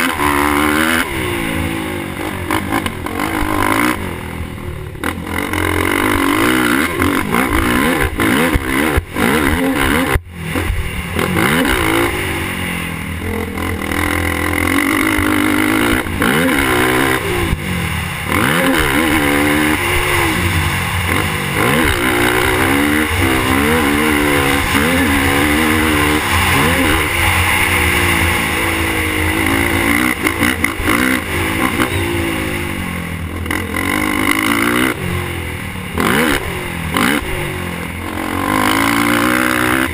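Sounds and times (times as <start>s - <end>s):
quad bike engine revving: 0.0s - 39.9s.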